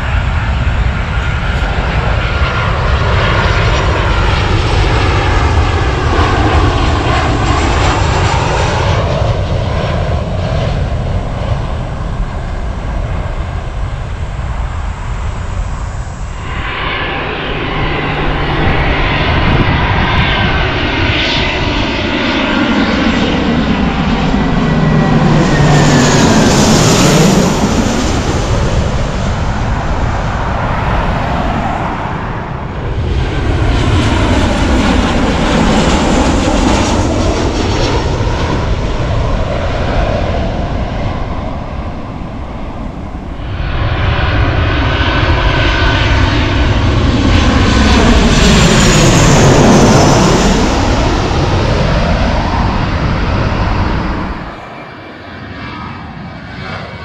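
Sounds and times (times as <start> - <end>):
jet airliner passing overhead: 0.0 - 57.0.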